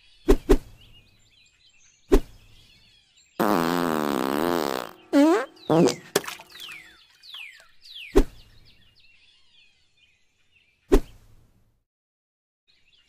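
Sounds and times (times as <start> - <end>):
faint bird chirps: 0.0 - 11.3
cartoon fart sounds: 3.4 - 6.4.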